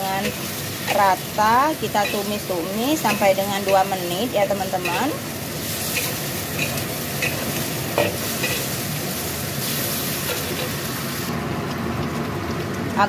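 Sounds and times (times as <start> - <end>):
food sizzling in a wok: 0.0 - 13.0
metal spatula scraping pan: 2.0 - 8.8.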